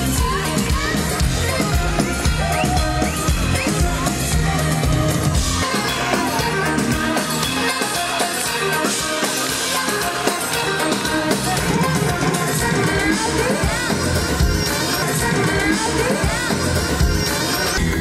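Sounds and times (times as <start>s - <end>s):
live band music over pa: 0.0s - 18.0s
deep bass: 13.7s - 18.0s.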